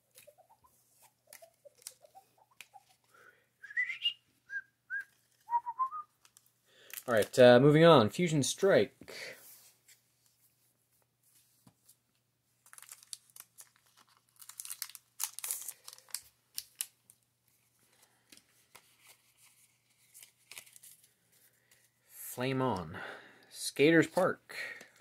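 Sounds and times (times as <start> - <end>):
foil wrapper crinkling: 12.6 - 17.2, 18.0 - 21.8.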